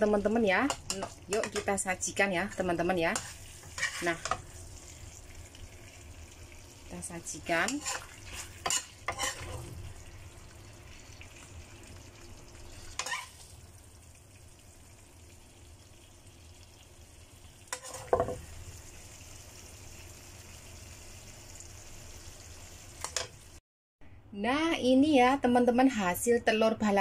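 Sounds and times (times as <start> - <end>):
sauce sizzling faintly in a wok: 0.0 - 23.6
utensil scraping pan: 2.5 - 4.5, 7.6 - 9.8, 12.8 - 13.4, 17.7 - 18.4.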